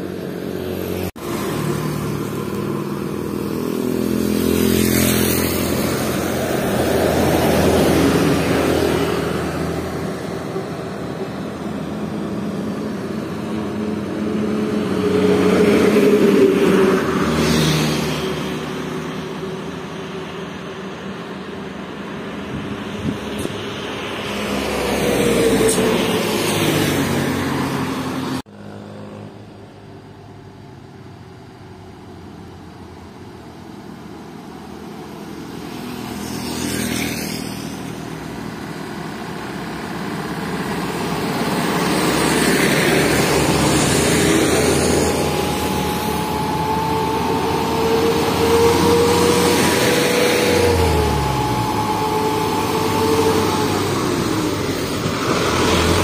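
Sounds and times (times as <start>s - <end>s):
diesel trucks driving past: 0.0s - 56.0s
truck whine dropping in pitch: 39.4s - 56.0s.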